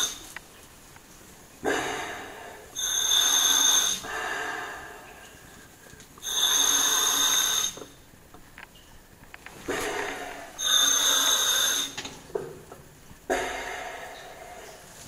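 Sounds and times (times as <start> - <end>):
high whistling hiss: 1.8 - 4.9, 6.2 - 7.9, 9.7 - 12.1
rough rushing breath: 9.7 - 12.0, 13.3 - 14.9.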